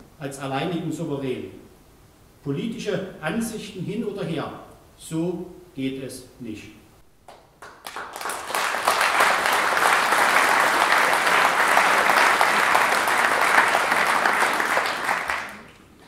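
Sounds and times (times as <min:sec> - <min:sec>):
audience applauding: 0:07.6 - 0:16.0.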